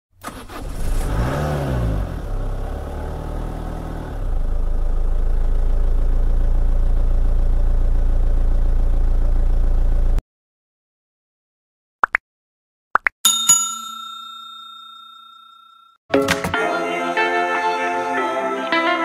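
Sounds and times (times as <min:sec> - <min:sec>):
car engine revving and idling: 0:00.2 - 0:10.2.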